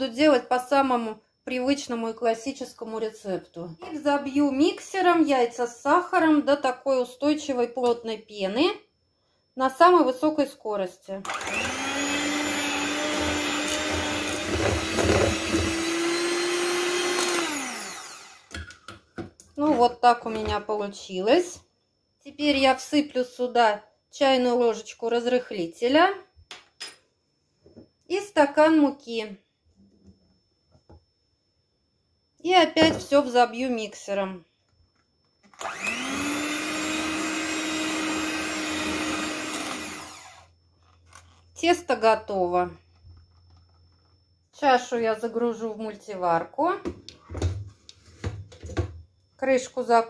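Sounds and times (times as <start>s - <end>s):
electric hand mixer whining: 11.3s - 18.7s, 35.6s - 40.5s.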